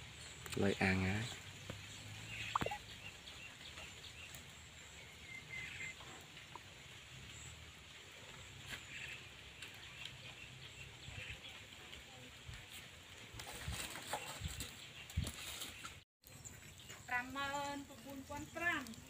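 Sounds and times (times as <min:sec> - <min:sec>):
faint bird chirps: 0:01.9 - 0:06.7.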